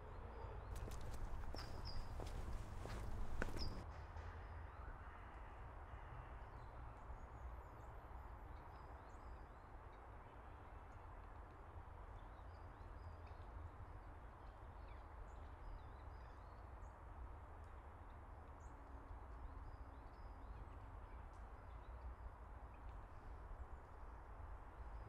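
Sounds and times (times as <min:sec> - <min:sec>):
small birds chirping: 0:00.7 - 0:03.8.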